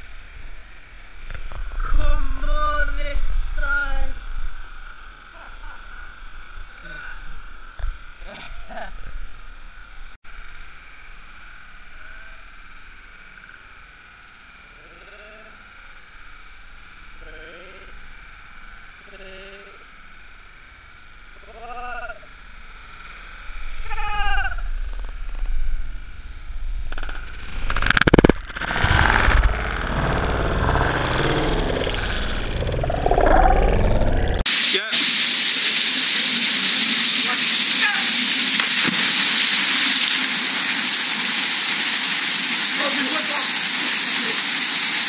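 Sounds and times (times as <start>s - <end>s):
steady watery hiss: 0.0s - 28.0s, 34.5s - 45.0s
person splashing into a pool: 38.6s - 40.3s.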